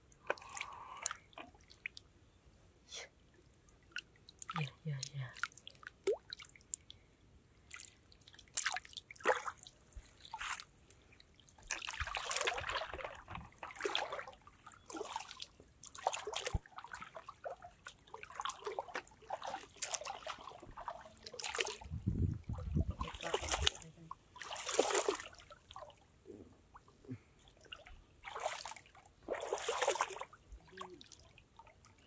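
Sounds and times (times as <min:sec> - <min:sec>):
shallow water sloshing and splashing: 0:07.6 - 0:26.0, 0:26.7 - 0:32.0.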